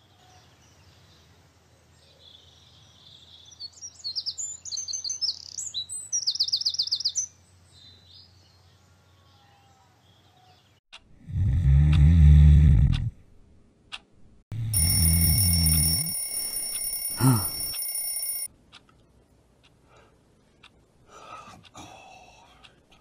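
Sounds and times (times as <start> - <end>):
alarm clock ringing: 14.7 - 18.5.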